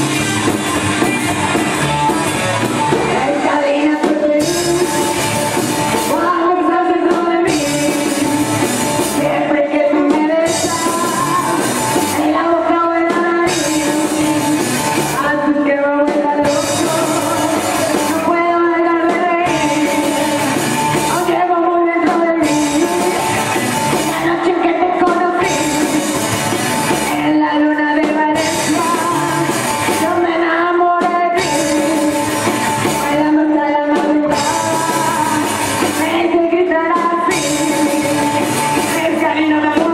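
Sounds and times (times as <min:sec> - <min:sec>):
rockabilly song with band: 0:00.0 - 0:39.9.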